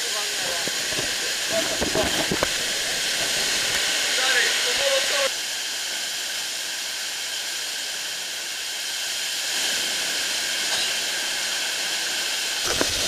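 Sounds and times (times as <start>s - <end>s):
water spray hissing: 0.0s - 5.4s, 8.9s - 13.0s.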